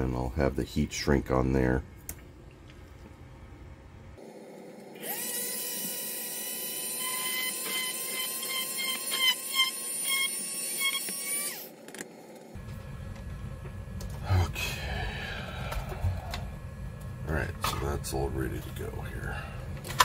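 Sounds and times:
electric drill whining: 5.0 - 11.7.

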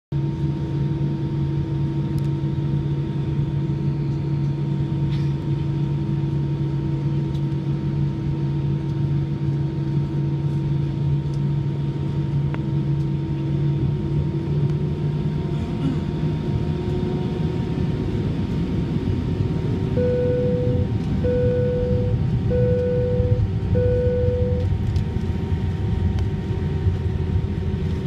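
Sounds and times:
airplane cabin engine hum: 0.1 - 28.0.

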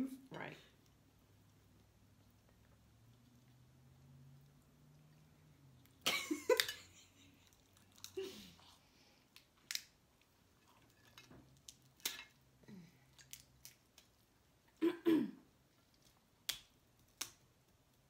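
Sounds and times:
crab shells cracking: 6.5 - 8.2, 9.3 - 14.4, 15.8 - 17.7.

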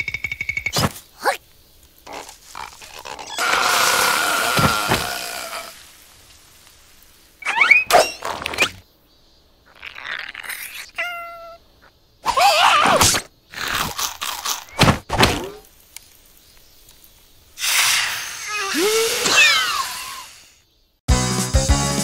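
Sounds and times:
cartoon creature squeals and gibberish: 2.1 - 5.8, 7.4 - 8.7, 9.7 - 11.6, 12.2 - 14.0, 17.6 - 20.5.

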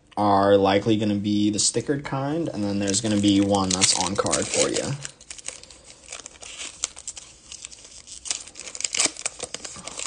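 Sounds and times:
wrapper crinkling and tearing: 2.6 - 10.0.

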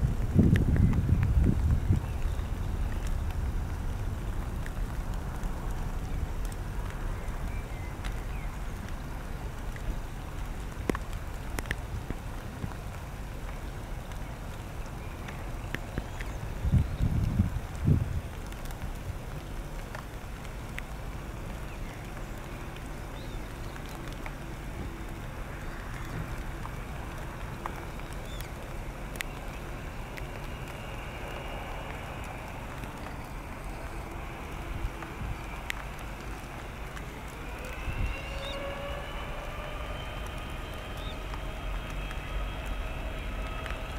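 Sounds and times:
jet engines low rumble: 0.0 - 43.9
light ticks: 0.0 - 43.9
jet engine whine: 24.0 - 43.9.

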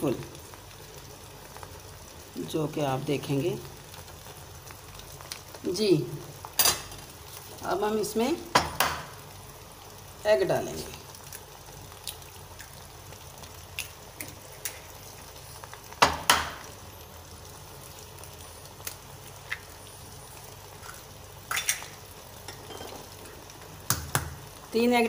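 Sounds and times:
eggs cracking: 13.6 - 14.9, 20.7 - 22.6.

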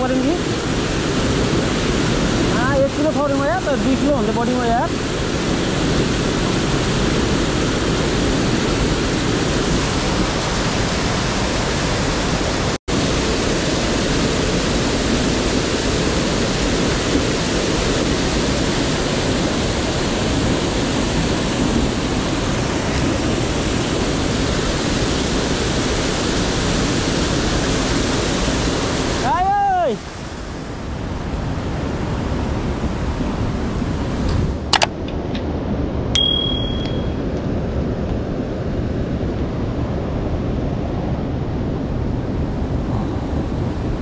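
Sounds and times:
whitewater rushing through gorge: 0.0 - 30.5.

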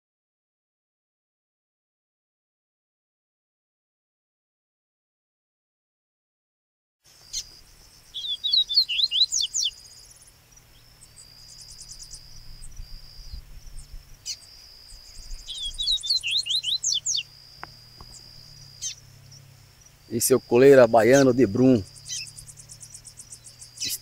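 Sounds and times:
bird singing sharp notes: 7.1 - 24.0
high insect drone: 7.1 - 24.0.

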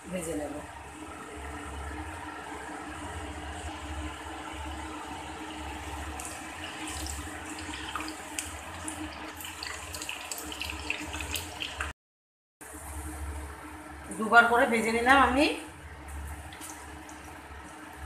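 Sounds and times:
chicken deep-frying in oil: 1.3 - 12.0, 16.1 - 18.0.

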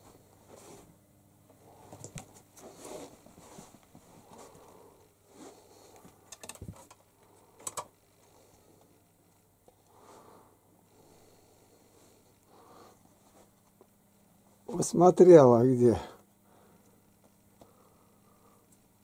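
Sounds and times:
faint rustling and scuffing: 0.0 - 5.9, 13.0 - 14.7
sharp clicks: 7.6 - 7.9.

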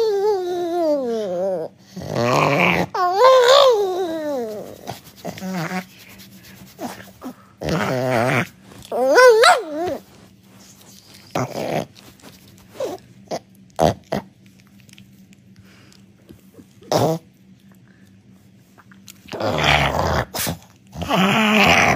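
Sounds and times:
dog grumbling and whining: 0.0 - 14.4, 16.4 - 17.5, 19.2 - 21.9
dog moaning: 0.0 - 14.4, 16.4 - 17.5, 19.2 - 21.9
dog grunts: 6.8 - 9.2, 11.3 - 12.1, 12.7 - 14.3, 16.4 - 17.3, 19.3 - 21.9.

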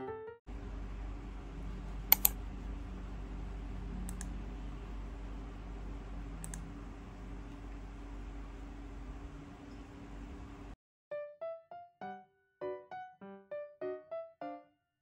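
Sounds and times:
low room hum: 0.5 - 10.8
mouse buttons clicking: 2.1 - 2.4.

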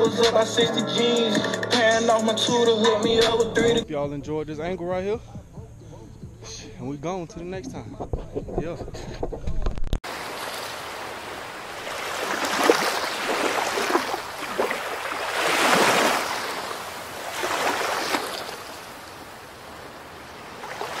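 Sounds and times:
ocean surf washing ashore: 10.0 - 21.0.

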